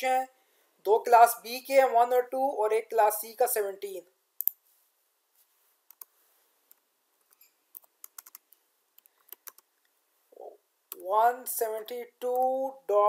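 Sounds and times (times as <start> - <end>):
keyboard typing: 6.7 - 9.7.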